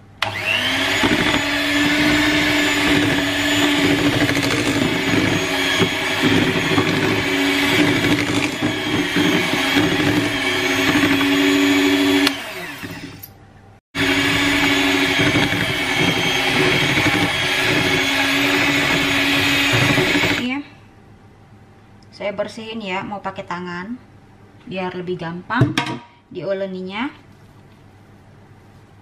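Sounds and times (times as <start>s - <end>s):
electric hand mixer whine: 0.2s - 13.3s, 14.0s - 20.5s.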